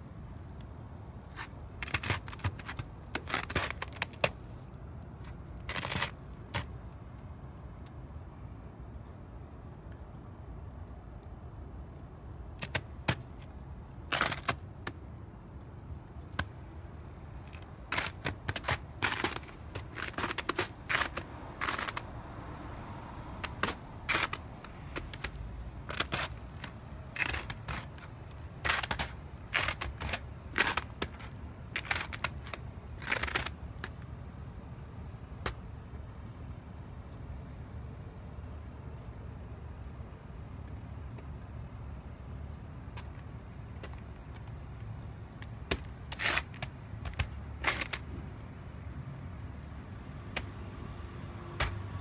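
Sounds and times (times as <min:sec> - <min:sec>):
steady low rumble: 0:00.0 - 0:35.2
footsteps crunching in snow: 0:17.4 - 0:22.1, 0:23.4 - 0:33.5.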